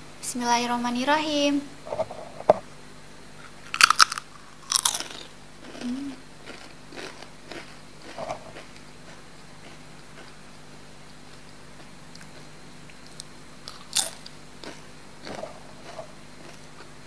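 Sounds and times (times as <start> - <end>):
tortilla chip crunching: 3.7 - 10.4, 13.2 - 17.0.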